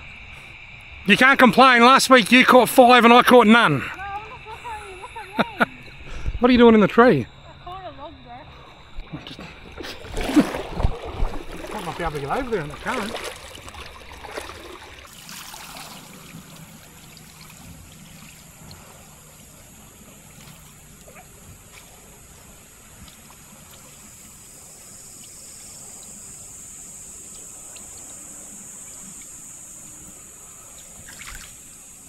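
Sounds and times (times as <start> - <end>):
faint ticks and splashes: 0.0 - 32.0
river water swirling and trickling: 9.4 - 32.0.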